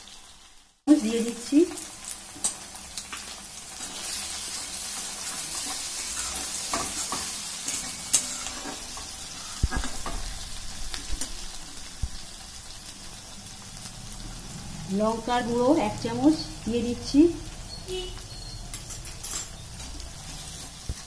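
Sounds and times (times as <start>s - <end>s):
onions sizzling in oil: 0.0s - 21.0s
metal spatula scraping a pan: 2.4s - 11.6s.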